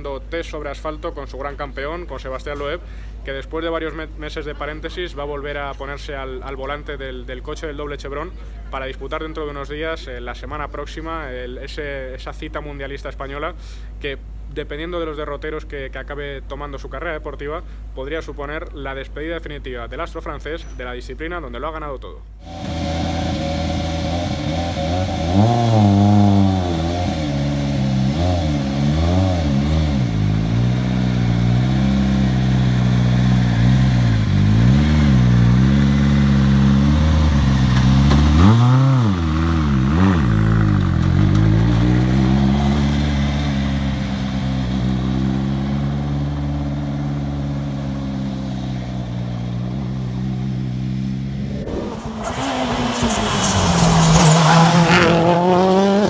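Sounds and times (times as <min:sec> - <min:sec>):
rally car engine revving: 0:22.4 - 0:56.0.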